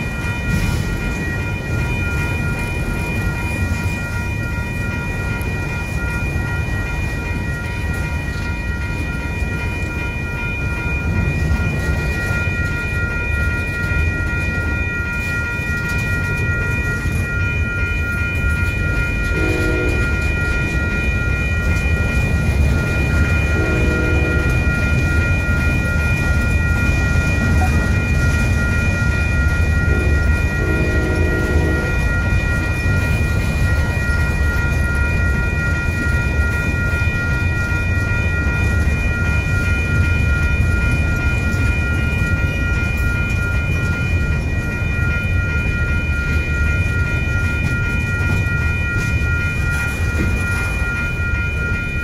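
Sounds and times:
crossing signal bell ringing: 0:00.0 - 0:52.0
freight train rumbling on rails: 0:00.0 - 0:52.0
distant train horn blasts: 0:19.3 - 0:20.3, 0:23.5 - 0:24.8, 0:29.9 - 0:32.1.

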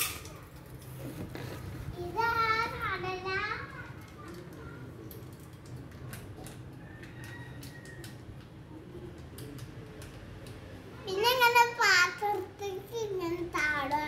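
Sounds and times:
popcorn kernels ticking: 0:04.0 - 0:10.7.

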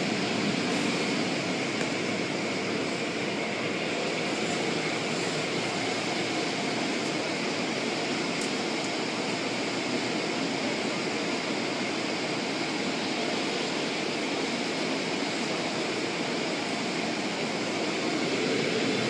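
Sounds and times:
car wash equipment rushing: 0:00.0 - 0:19.0.

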